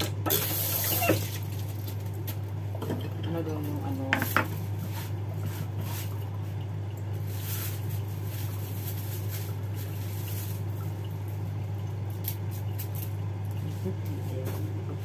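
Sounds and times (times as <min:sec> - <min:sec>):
steady low hum: 0:00.0 - 0:15.0
plastic bag rustling: 0:07.2 - 0:11.0.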